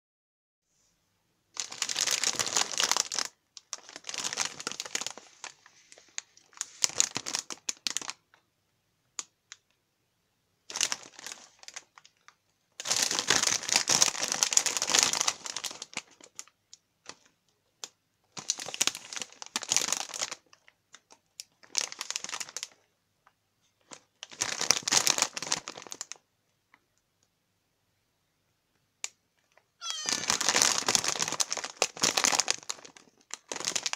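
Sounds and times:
foil snack bag crinkling: 0:01.6 - 0:08.3, 0:10.7 - 0:16.5, 0:18.3 - 0:22.8, 0:23.8 - 0:26.2, 0:29.8 - 0:33.9.

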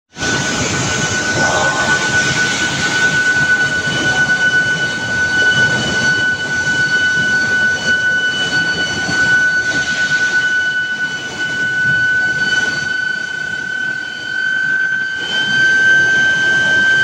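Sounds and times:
roller conveyor rumble: 0:00.2 - 0:07.6
high-pitched whine: 0:00.2 - 0:17.0.

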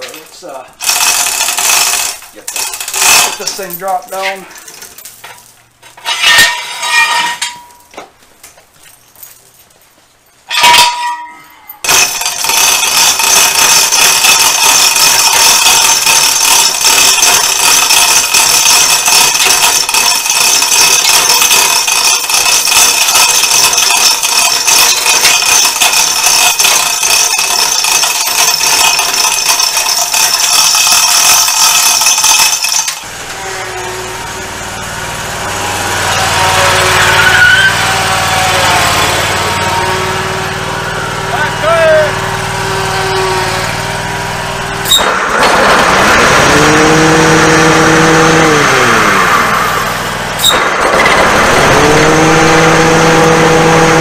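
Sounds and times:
hoist running: 0:00.0 - 0:07.9, 0:10.5 - 0:54.0
chains clinking: 0:00.0 - 0:08.0, 0:08.8 - 0:34.9
low engine sound: 0:33.0 - 0:54.0.

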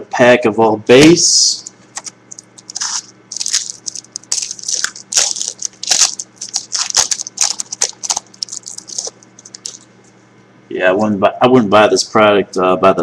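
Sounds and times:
foil wrapper crinkling and tearing: 0:02.0 - 0:09.8.

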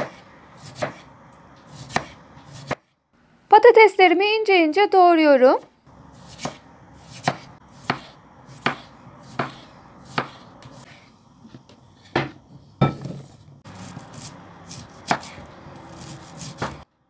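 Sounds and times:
knife slicing on cutting board: 0:00.0 - 0:01.1, 0:01.7 - 0:02.8, 0:06.2 - 0:11.1, 0:13.7 - 0:16.8.

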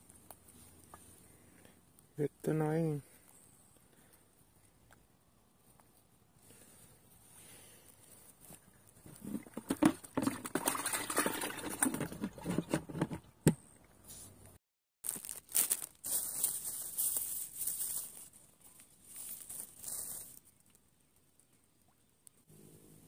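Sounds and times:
rustling and crinkling: 0:00.0 - 0:02.1, 0:05.6 - 0:06.2, 0:07.8 - 0:13.3, 0:14.0 - 0:21.7.

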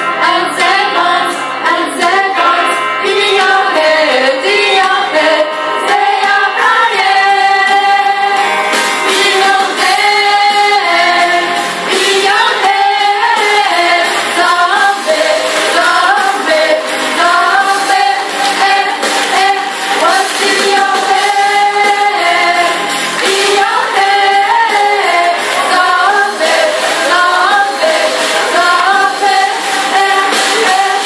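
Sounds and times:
women singing into microphones: 0:00.0 - 0:31.0.

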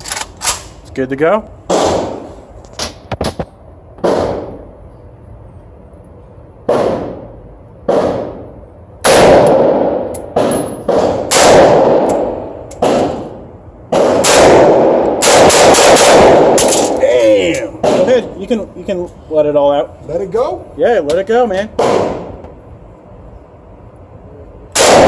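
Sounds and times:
rifle shots echoing indoors: 0:06.6 - 0:17.0, 0:21.8 - 0:22.4, 0:24.7 - 0:25.0.

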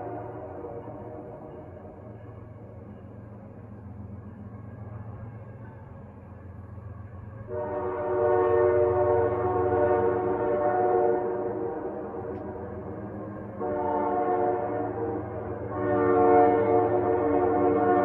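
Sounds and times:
train horn blasts: 0:00.0 - 0:01.8, 0:07.4 - 0:18.0
train rumbling: 0:00.0 - 0:18.0.

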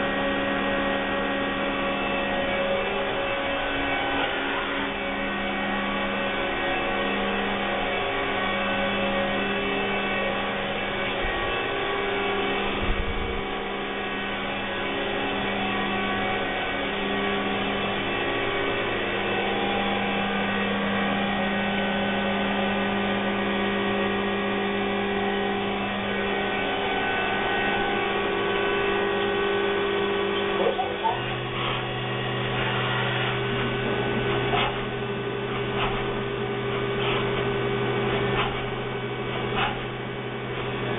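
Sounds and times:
machinery drone: 0:00.0 - 0:40.9.

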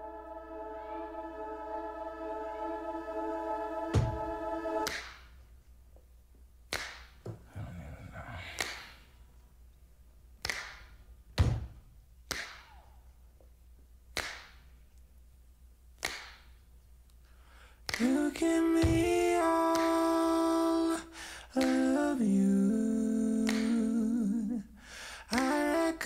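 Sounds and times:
music: 0:00.0 - 0:05.1, 0:18.0 - 0:20.8.

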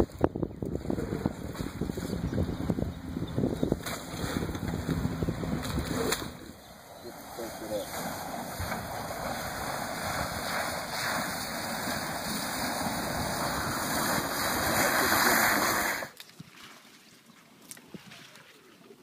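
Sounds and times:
tyres splashing through water and mud: 0:00.0 - 0:18.7.

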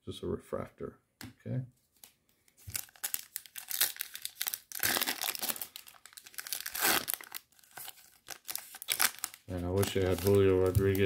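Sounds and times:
foil wrapper crinkling and tearing: 0:02.6 - 0:11.0.

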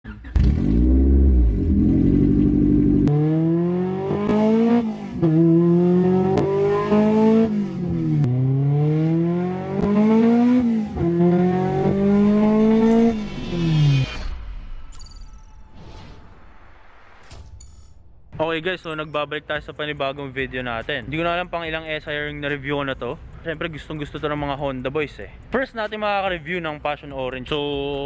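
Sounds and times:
car engine revving through gears: 0:00.1 - 0:14.4.

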